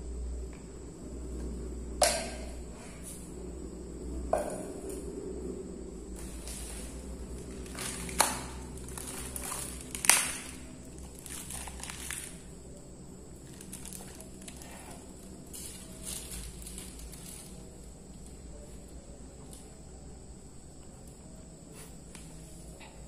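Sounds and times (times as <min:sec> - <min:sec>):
paper wrapping crinkling: 0:06.2 - 0:12.5, 0:13.4 - 0:18.3
plastic cup crinkling: 0:06.2 - 0:12.5, 0:13.4 - 0:17.7
eating sounds: 0:06.3 - 0:12.6.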